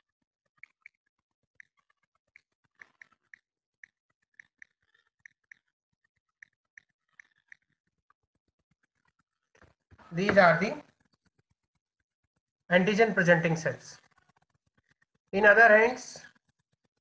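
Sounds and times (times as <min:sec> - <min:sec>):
faint irregular clicks: 0:00.5 - 0:10.0, 0:10.8 - 0:12.6.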